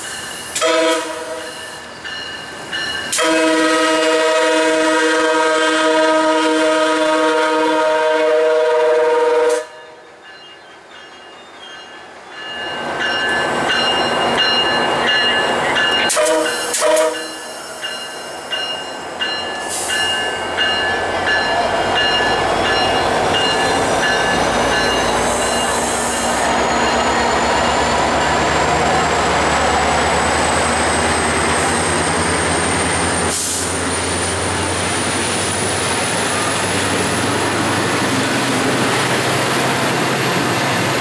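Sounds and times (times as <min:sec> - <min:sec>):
train engine passing: 0:00.0 - 0:41.0
locomotive horn chord: 0:00.6 - 0:01.6, 0:03.1 - 0:10.0, 0:16.1 - 0:17.4
short horn blast: 0:00.6 - 0:01.6, 0:03.1 - 0:09.8, 0:16.1 - 0:17.4.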